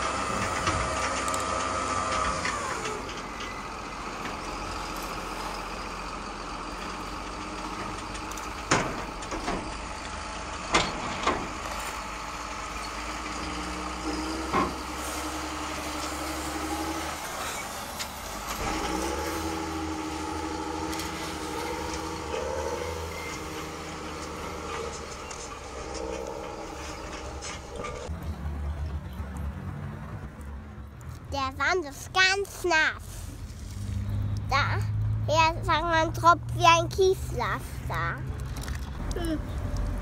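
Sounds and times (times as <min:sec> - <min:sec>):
toy bucket scraping sand: 0:14.1 - 0:28.1.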